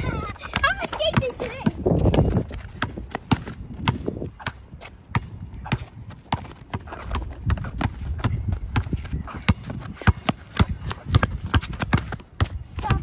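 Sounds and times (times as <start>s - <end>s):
footsteps on hard court: 0.0s - 13.0s
basketball bouncing: 0.3s - 13.0s.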